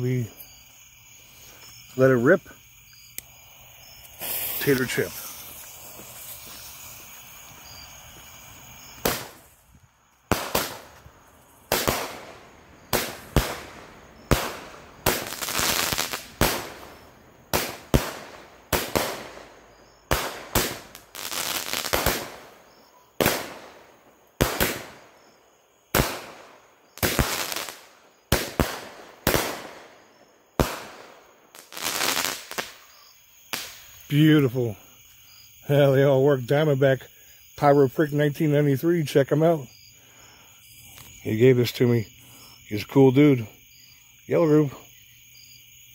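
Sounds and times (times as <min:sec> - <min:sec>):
fuse hissing: 0:03.1 - 0:09.6
fireworks cake firing: 0:04.0 - 0:07.6, 0:08.4 - 0:25.2, 0:25.9 - 0:34.2.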